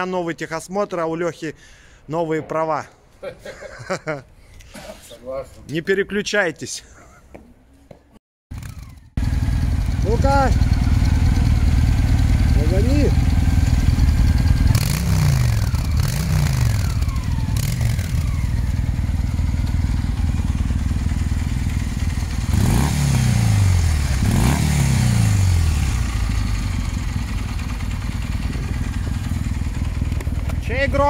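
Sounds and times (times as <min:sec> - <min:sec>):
motorcycle engine revving: 0:08.5 - 0:31.0
motorcycle engines idling: 0:08.6 - 0:31.0.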